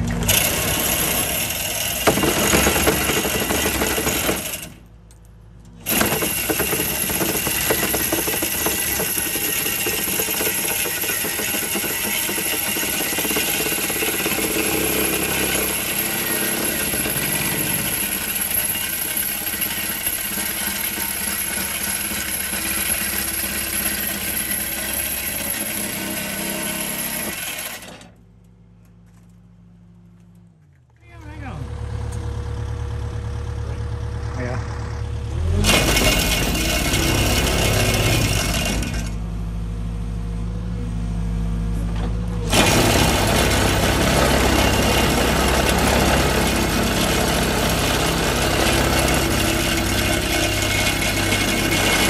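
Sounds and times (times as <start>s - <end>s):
jackhammer hammering: 0.0s - 4.9s, 5.8s - 28.2s, 35.6s - 39.2s, 42.4s - 52.0s.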